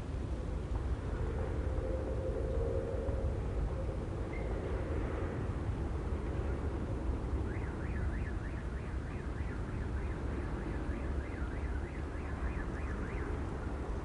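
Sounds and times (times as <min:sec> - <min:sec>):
low rumble: 0:00.0 - 0:07.2
electronic warbling siren: 0:01.4 - 0:04.6, 0:07.4 - 0:13.8.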